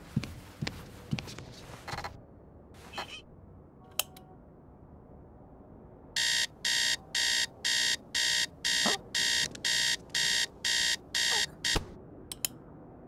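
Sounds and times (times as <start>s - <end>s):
alarm clock beeping: 6.2s - 11.8s.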